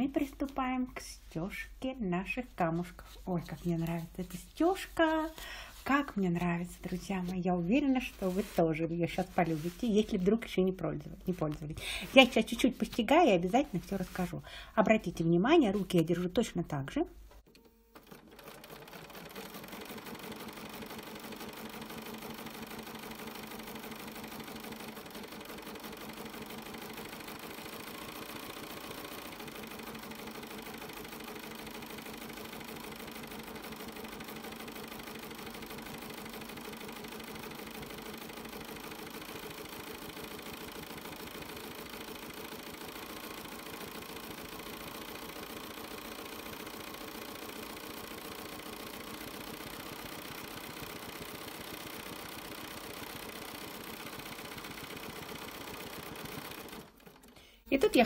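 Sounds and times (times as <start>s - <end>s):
sewing machine stitching: 17.4s - 58.0s.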